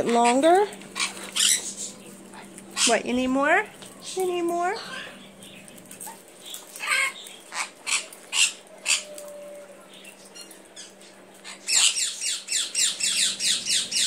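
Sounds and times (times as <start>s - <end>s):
parrot screeching: 0.1s - 1.9s, 6.7s - 9.3s, 11.4s - 14.0s.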